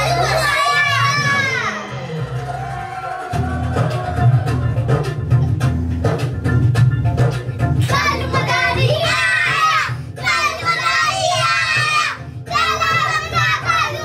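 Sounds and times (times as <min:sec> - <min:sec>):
backing track with drum beat: 0:02.1 - 0:14.0
children singing together: 0:07.9 - 0:14.0.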